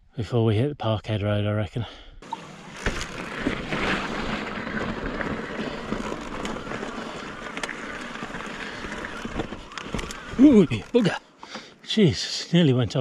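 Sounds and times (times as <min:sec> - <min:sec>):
bike tyres on rough trail: 0:02.2 - 0:11.8
bike clicks and rattles: 0:02.4 - 0:11.7.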